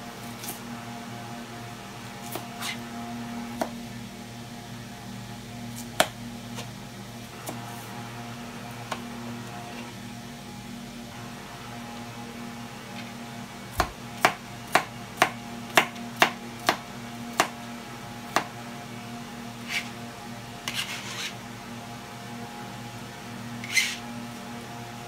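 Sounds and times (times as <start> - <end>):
knife scraping cutting board: 2.2 - 2.9, 19.6 - 20.0, 20.6 - 21.4, 23.6 - 24.0
knife chopping on cutting board: 13.7 - 17.6, 18.3 - 18.5.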